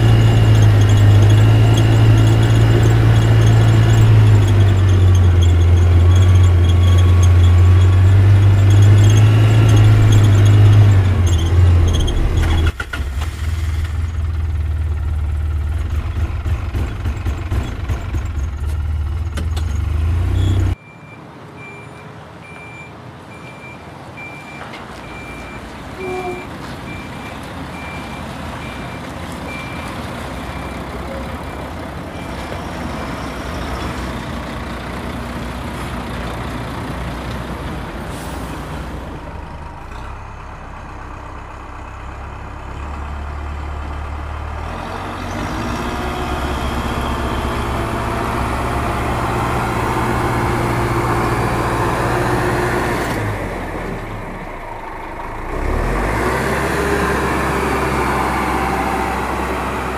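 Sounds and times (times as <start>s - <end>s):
reversing alarm beeping: 0.0s - 12.6s, 20.4s - 32.4s
heavy truck engine running: 0.0s - 21.8s, 22.6s - 59.9s.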